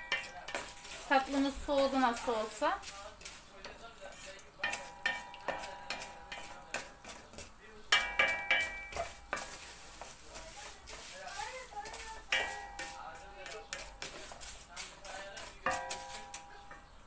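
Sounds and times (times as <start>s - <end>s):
spoon knocking against pot: 0.0s - 1.0s, 4.6s - 9.6s, 11.8s - 14.3s, 15.1s - 17.0s
light sizzle: 0.0s - 17.0s
wooden spoon scraping a pot: 0.0s - 17.0s.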